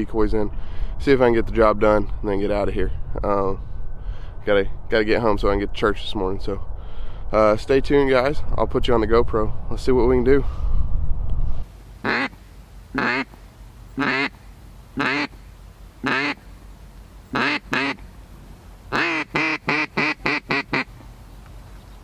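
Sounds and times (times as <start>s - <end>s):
duck call quacks: 12.0s - 13.4s, 14.0s - 14.4s, 15.0s - 15.4s, 16.0s - 16.4s, 17.3s - 18.0s, 18.9s - 20.9s.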